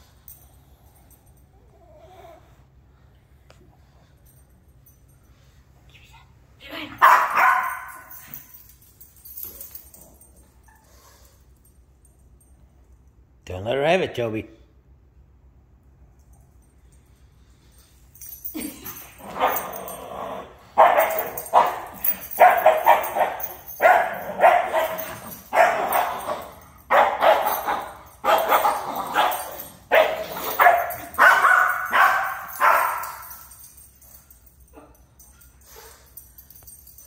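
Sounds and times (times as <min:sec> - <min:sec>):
small dog barking: 0:07.0 - 0:07.9, 0:26.9 - 0:33.1.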